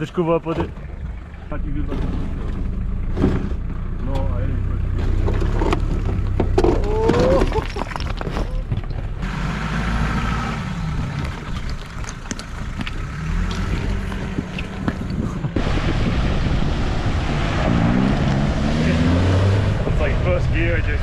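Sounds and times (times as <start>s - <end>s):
car engine idling: 0.0s - 16.0s
tyres clicking on rock: 11.0s - 15.6s.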